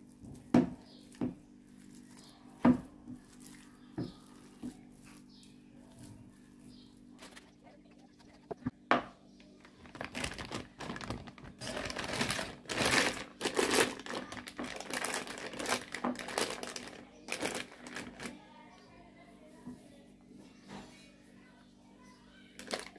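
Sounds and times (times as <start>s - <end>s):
plastic bag crinkling: 9.6s - 18.4s, 22.6s - 22.9s.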